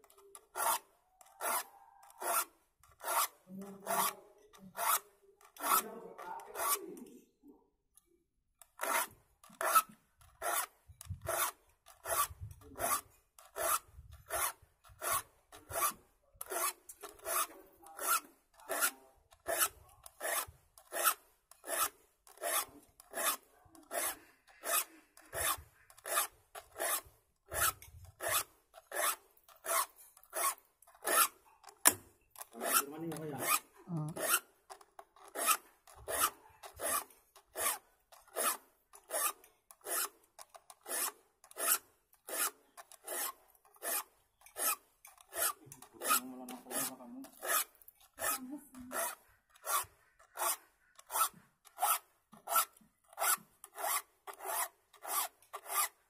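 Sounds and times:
file scraping saw teeth: 0:00.0 - 0:07.1, 0:08.6 - 0:56.0.

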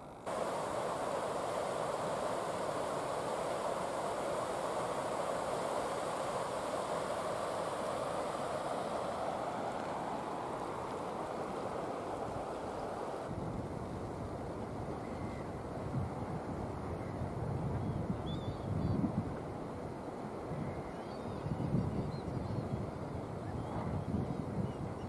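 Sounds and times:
river water rushing over weir: 0:00.1 - 0:13.4.

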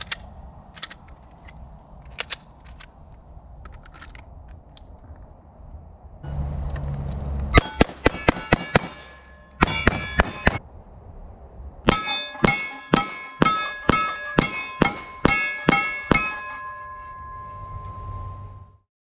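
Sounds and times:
bullets clanging on steel plate: 0:07.6 - 0:10.6, 0:11.9 - 0:17.6.

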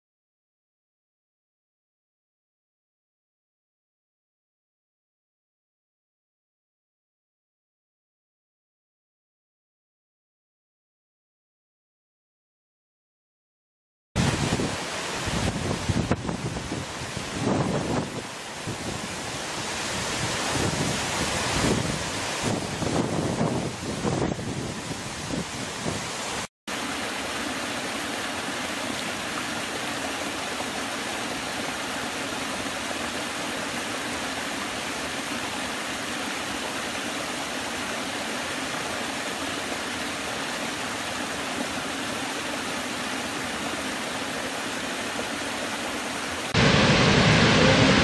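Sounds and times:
waterfall rushing: 0:14.2 - 0:48.0.

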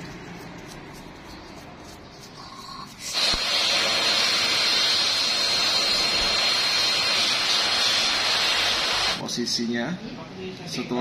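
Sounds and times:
blow dryer running: 0:03.1 - 0:09.2.

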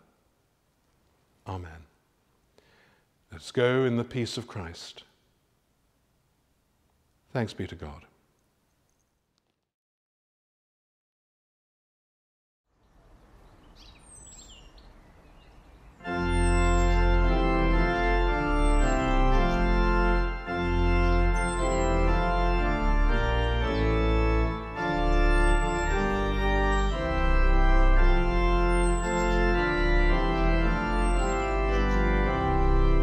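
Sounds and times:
bird chirping: 0:12.8 - 0:17.2, 0:18.4 - 0:19.8, 0:20.6 - 0:22.5, 0:23.4 - 0:27.1, 0:28.5 - 0:30.1, 0:30.8 - 0:32.3
organ playing sustained chords: 0:15.9 - 0:33.0.

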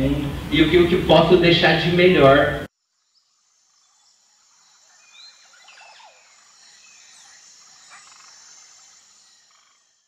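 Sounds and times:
frogs calling: 0:02.7 - 0:10.0.

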